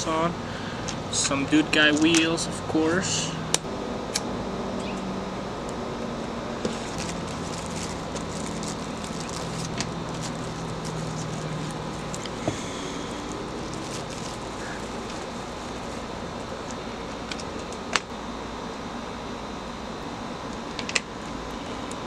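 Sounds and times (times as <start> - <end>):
low background hum: 0.0 - 22.0
plastic packaging clicks and rustles: 6.7 - 12.4, 13.2 - 17.8.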